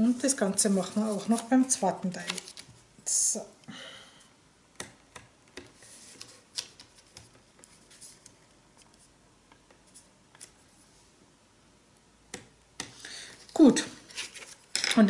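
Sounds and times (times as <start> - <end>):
card rustling: 0.6 - 2.7.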